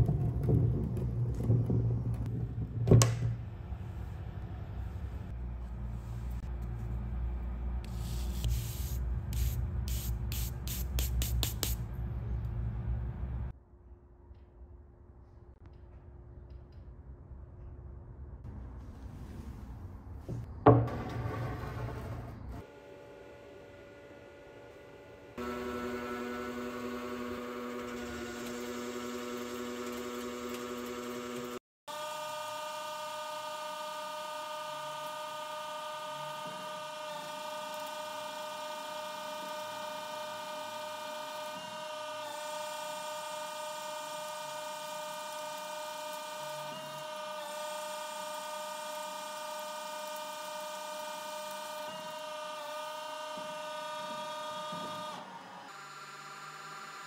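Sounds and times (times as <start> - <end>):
lathe machine whine: 23.0 - 57.0.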